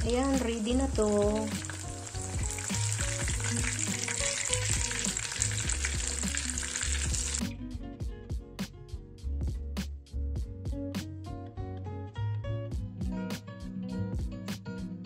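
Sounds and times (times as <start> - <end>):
fish frying in hot oil: 0.0 - 7.4.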